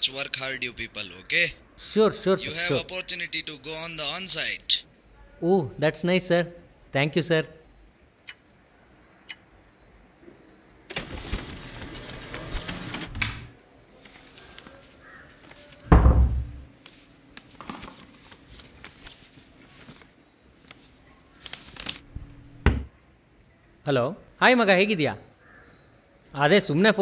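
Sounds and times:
rustling: 0:14.0 - 0:15.9, 0:16.5 - 0:22.5.

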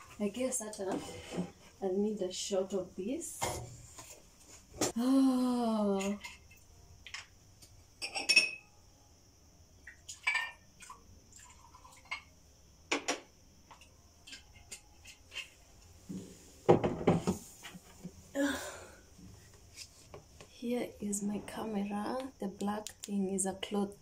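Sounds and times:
glass and dishes clinking: 0:08.0 - 0:08.7, 0:10.2 - 0:10.6.

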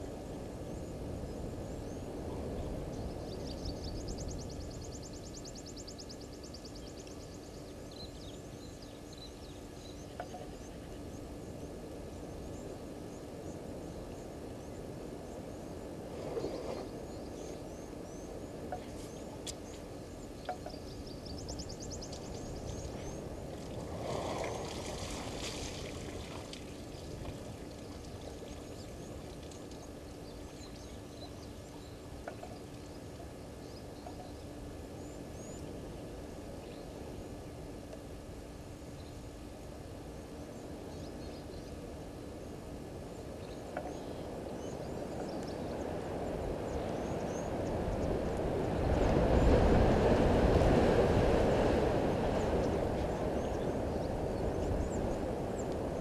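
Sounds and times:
steady low hum: 0:00.0 - 0:56.0
water splashing: 0:23.6 - 0:29.8.

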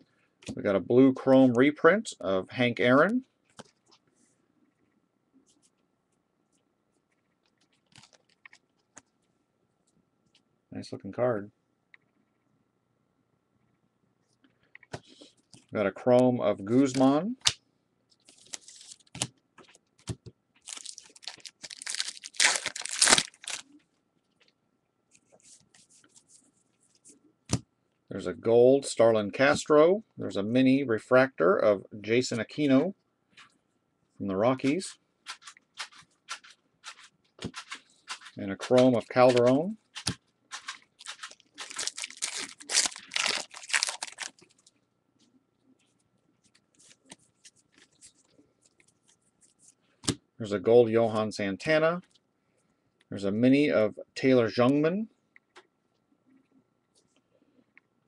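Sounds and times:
cards being handled: 0:07.4 - 0:09.1, 0:16.8 - 0:23.8, 0:34.6 - 0:44.7
wrapper crinkling: 0:18.3 - 0:19.3, 0:20.6 - 0:23.8, 0:35.3 - 0:44.7.

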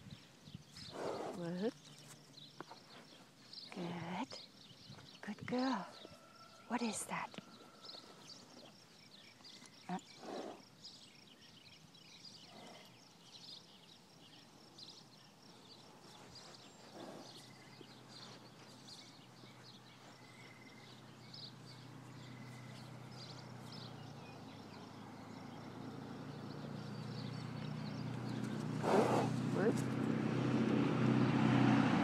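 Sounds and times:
soft horse noises: 0:00.0 - 0:31.3
vehicle engine humming: 0:16.6 - 0:32.0.

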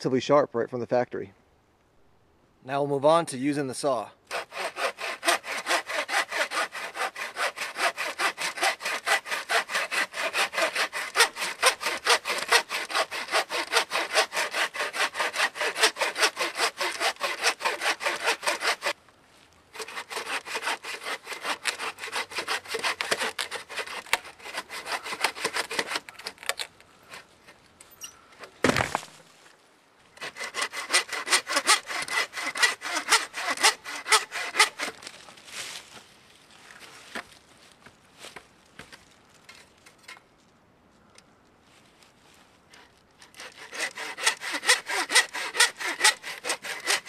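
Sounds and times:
saw cutting through log: 0:04.3 - 0:19.0, 0:19.7 - 0:26.5, 0:30.2 - 0:35.1, 0:43.2 - 0:47.0.

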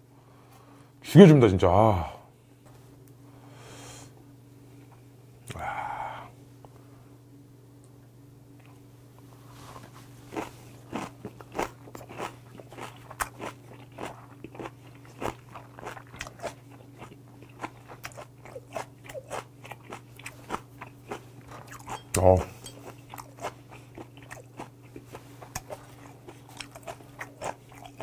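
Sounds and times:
person chewing crunchy food: 0:09.7 - 0:28.0.

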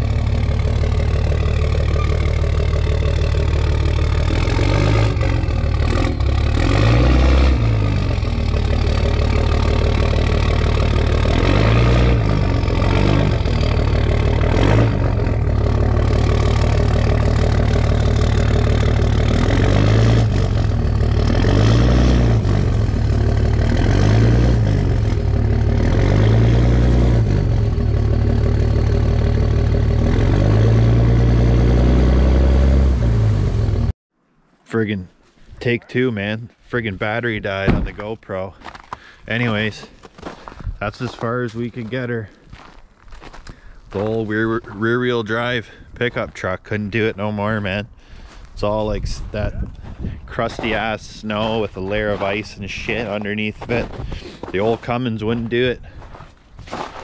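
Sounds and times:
tires spinning on snow: 0:00.0 - 0:33.9, 0:49.2 - 0:57.0
diesel truck engine revving: 0:00.0 - 0:34.0, 0:43.3 - 0:56.1.

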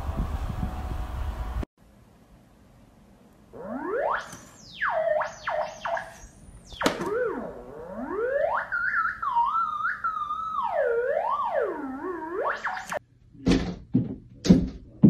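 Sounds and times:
theremin sliding tone: 0:03.6 - 0:13.0.

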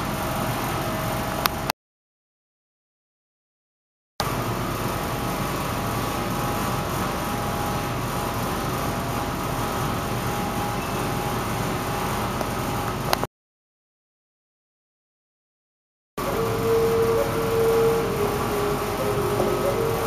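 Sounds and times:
ventilation hum and hiss: 0:04.2 - 0:13.2, 0:16.2 - 0:20.0
faint steady tones: 0:16.2 - 0:20.0.

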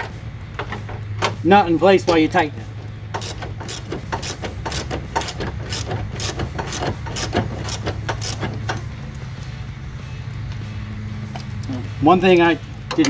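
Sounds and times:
socket ratchet clicking: 0:03.1 - 0:08.8.

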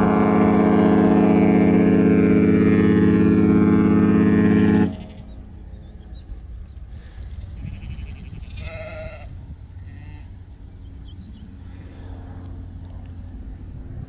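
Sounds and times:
low rumble: 0:00.0 - 0:14.0
sheep bleating: 0:07.6 - 0:10.3.

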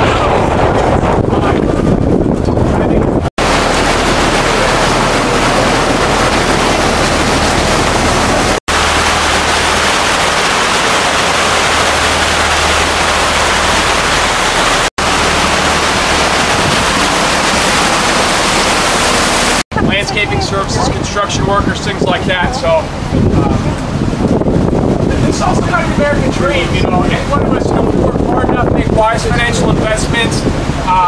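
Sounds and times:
low engine hum: 0:00.0 - 0:21.0
water noise from boat: 0:00.0 - 0:31.0
wind on microphone: 0:00.0 - 0:31.0.

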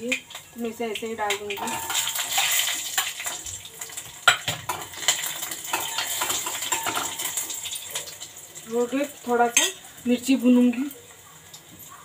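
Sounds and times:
garlic sizzling in hot oil: 0:00.0 - 0:12.0
metal spoon clinking on pot: 0:01.3 - 0:03.3, 0:04.2 - 0:08.1, 0:09.5 - 0:09.8.

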